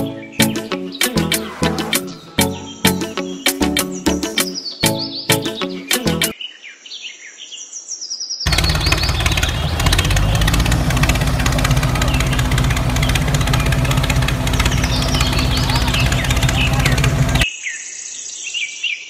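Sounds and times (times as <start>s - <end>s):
birds chirping: 0.0s - 6.4s, 8.5s - 18.2s
electric motor humming and clattering: 8.5s - 17.4s.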